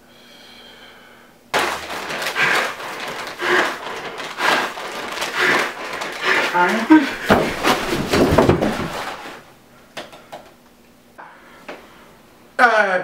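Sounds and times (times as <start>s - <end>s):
man breathing hard into paper bag: 0.0s - 9.4s
paper bag crinkling: 1.6s - 9.4s.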